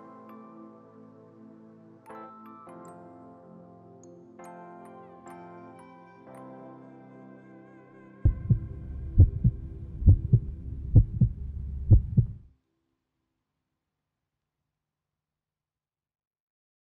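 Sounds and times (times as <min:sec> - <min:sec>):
soft music: 0:00.0 - 0:12.5
heartbeat double thumps: 0:08.3 - 0:12.4
low hum: 0:08.3 - 0:12.5.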